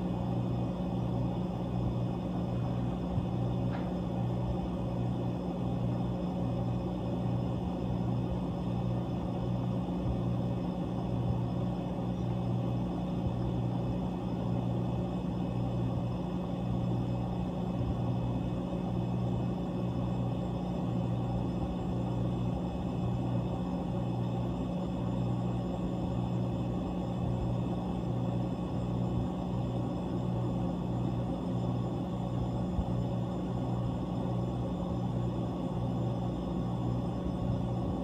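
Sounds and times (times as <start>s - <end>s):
refrigeration compressor humming: 0.0s - 38.0s.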